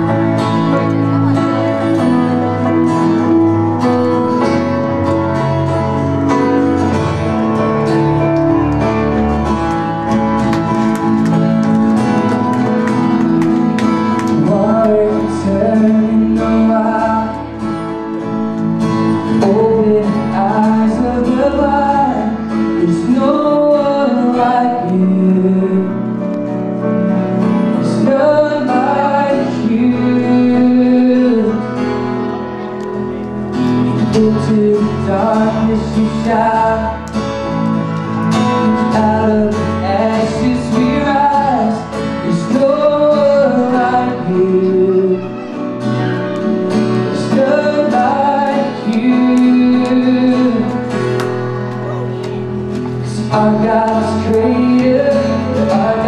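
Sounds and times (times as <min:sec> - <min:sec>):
keyboard: 0:00.0 - 0:56.0
strummed acoustic guitar: 0:00.0 - 0:56.0
man singing: 0:13.9 - 0:32.7, 0:33.9 - 0:56.0.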